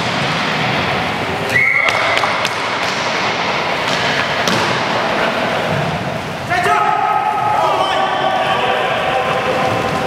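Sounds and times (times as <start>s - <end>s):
referee's whistle blowing: 1.5s - 2.1s
hockey sticks and puck clattering: 1.5s - 5.9s.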